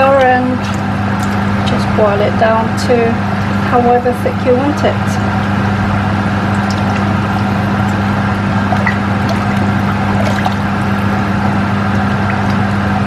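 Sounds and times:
low hum: 0:00.0 - 0:13.0
liquid sloshing in a saucepan: 0:06.5 - 0:12.7.

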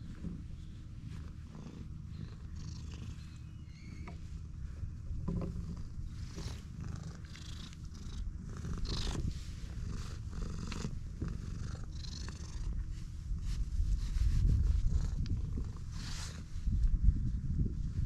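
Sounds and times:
fur rustling under hand: 0:00.0 - 0:02.3
cat purring: 0:00.0 - 0:16.9.

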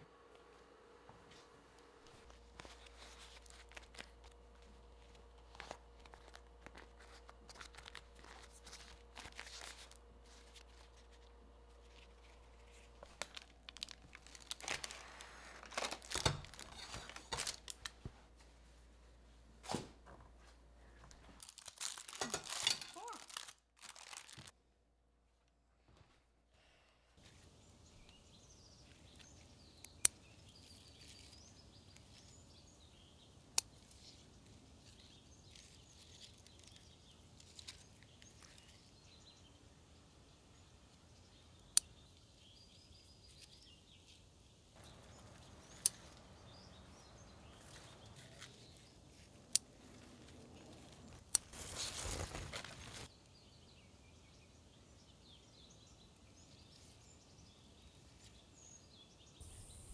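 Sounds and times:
birds chirping: 0:37.9 - 0:59.9
loud rustle: 0:49.9 - 0:53.1.

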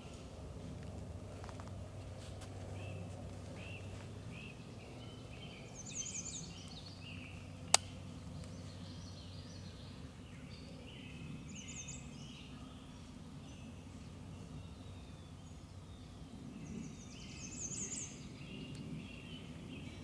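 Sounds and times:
songbirds singing and chirping: 0:00.0 - 0:20.0
sharp click: 0:07.7 - 0:08.0.

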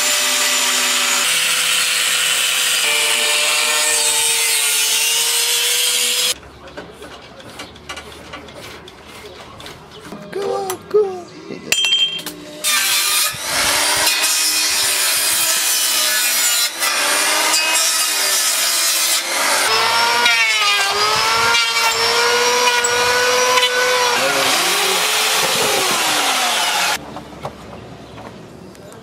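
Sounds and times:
circular saw cutting wood: 0:00.0 - 0:06.4, 0:12.6 - 0:27.0.

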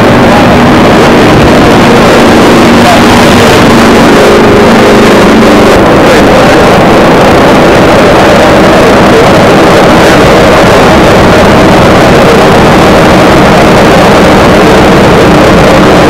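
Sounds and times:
loud piston aircraft engine running: 0:00.0 - 0:16.0.

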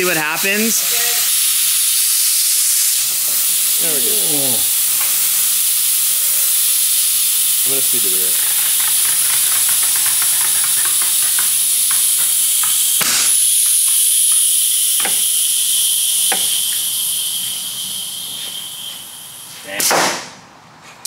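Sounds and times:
high-pressure air hissing: 0:00.0 - 0:19.8
thin whistle: 0:13.3 - 0:19.6.

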